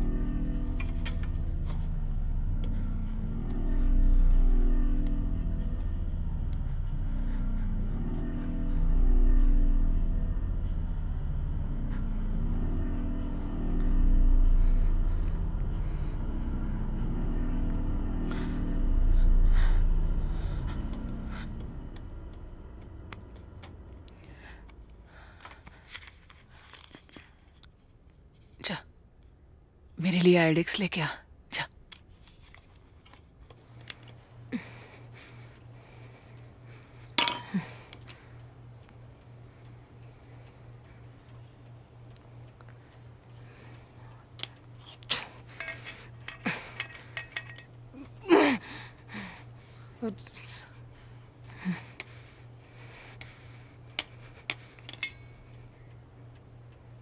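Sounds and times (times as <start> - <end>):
low rumble: 0.0 - 26.6
steady low hum: 0.0 - 57.0
steel kitchen utensils clinking: 37.2 - 37.5, 45.6 - 47.7.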